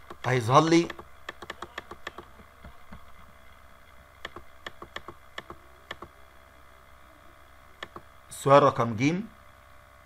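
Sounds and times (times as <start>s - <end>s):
sharp computer clicks: 0.0s - 3.0s, 4.2s - 6.2s, 7.8s - 8.1s
faint steady hum: 0.0s - 10.0s.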